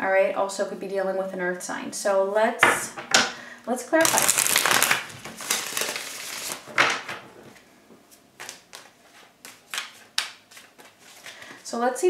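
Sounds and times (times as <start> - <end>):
cards being shuffled: 4.0 - 7.2, 8.4 - 11.4.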